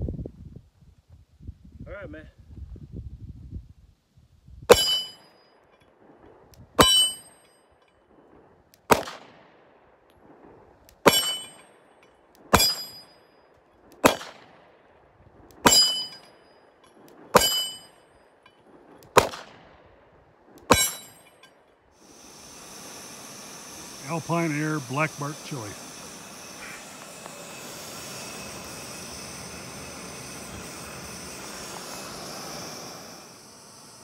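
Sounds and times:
short metallic ring: 4.7s - 5.9s, 6.8s - 8.0s, 11.1s - 13.4s, 15.6s - 18.6s, 20.7s - 21.7s
pistol shots: 8.9s - 9.5s, 11.0s - 11.6s, 12.5s - 13.0s, 13.9s - 14.7s, 17.0s - 18.0s, 18.8s - 19.8s, 20.6s - 21.2s.

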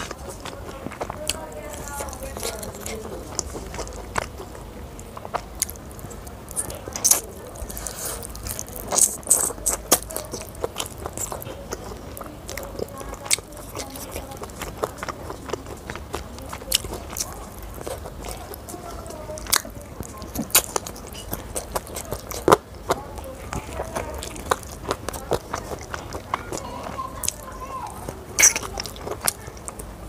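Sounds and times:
person biting and chewing meat: 0.0s - 30.0s
sharp mouth clicks: 28.4s - 29.9s.

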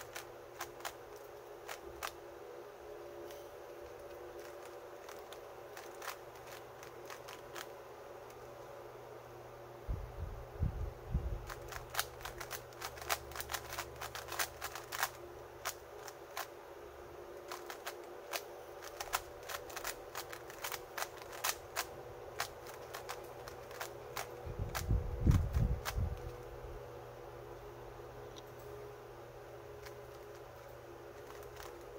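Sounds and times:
puzzle cube clicking: 0.0s - 2.2s, 3.7s - 7.7s, 11.4s - 16.5s, 17.4s - 26.2s, 31.2s - 31.9s.

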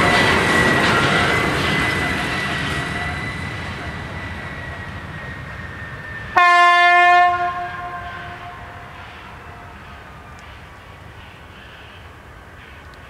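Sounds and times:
high wheel squeal: 0.0s - 6.4s
freight train rumble: 0.0s - 13.0s
locomotive horn blast: 6.4s - 9.8s.

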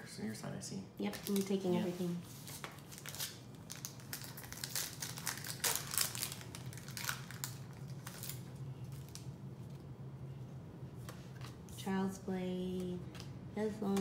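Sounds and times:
foil wrapper crinkling: 1.1s - 9.8s.

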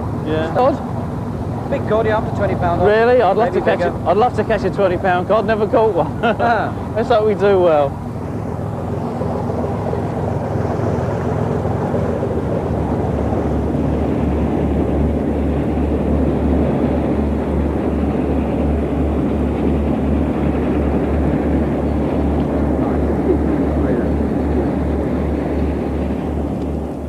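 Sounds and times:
boat engine running: 0.0s - 27.0s
rushing wind and water: 0.0s - 27.0s
low pulsing throb: 6.6s - 27.0s.

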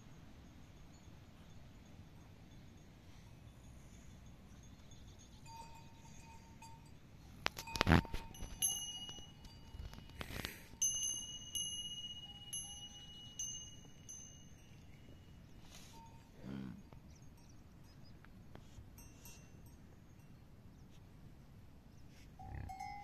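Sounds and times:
small metal bells ringing: 0.6s - 16.4s, 19.0s - 20.4s, 22.4s - 23.0s.

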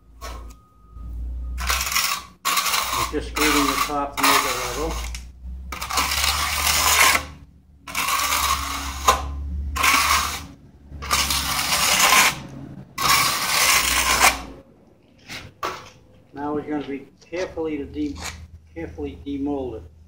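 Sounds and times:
trowel scraping wet concrete: 1.6s - 14.6s.

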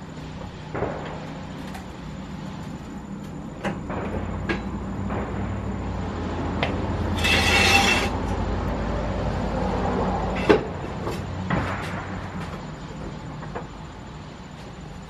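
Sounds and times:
low hum: 0.0s - 15.0s
harsh scraping rasp: 7.1s - 8.2s.

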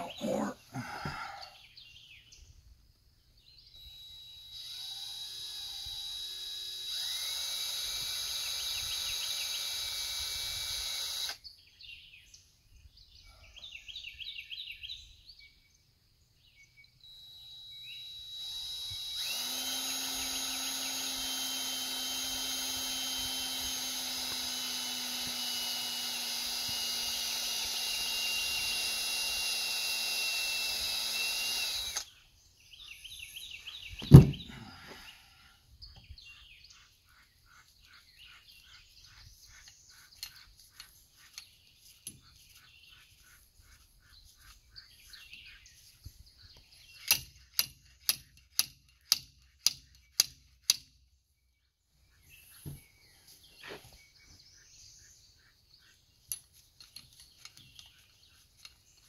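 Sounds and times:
hydraulic pump motor running: 3.8s - 11.4s, 17.1s - 32.1s.

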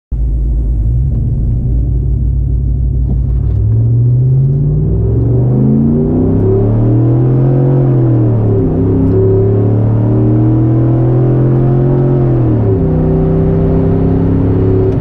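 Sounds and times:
engine accelerating hard: 0.4s - 15.0s.

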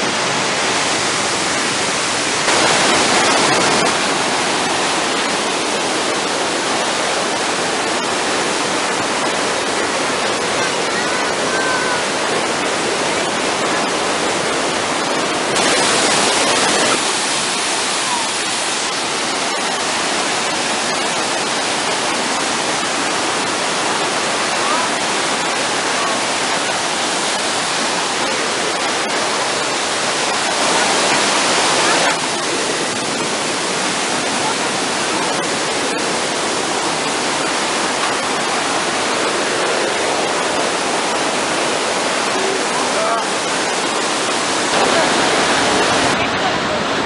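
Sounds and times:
waterfall rushing: 0.0s - 47.0s.

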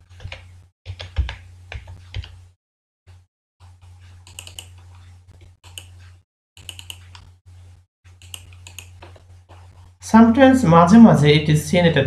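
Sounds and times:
keyboard and mouse clicking: 4.3s - 4.8s, 5.7s - 6.0s, 6.6s - 7.3s, 8.2s - 9.1s.

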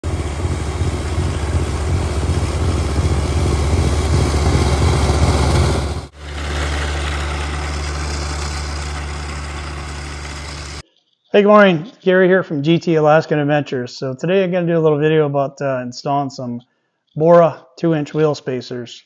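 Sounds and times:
snowblower throwing snow: 0.0s - 10.8s
tractor diesel engine running: 0.0s - 10.8s.

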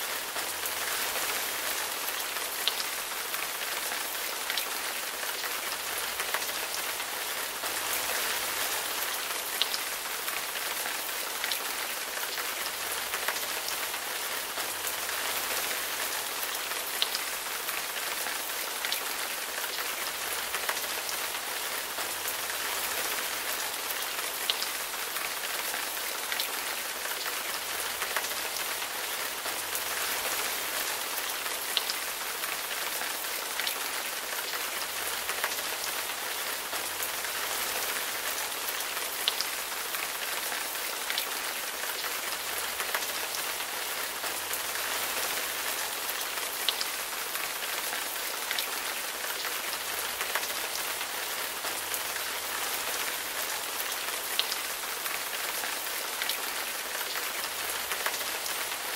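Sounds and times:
rain on leaves: 0.0s - 58.9s.

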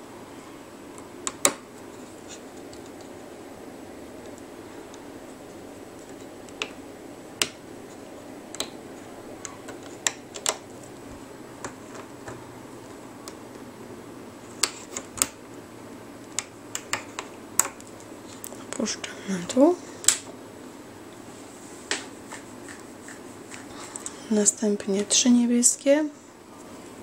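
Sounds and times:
low background hum: 0.0s - 27.0s.

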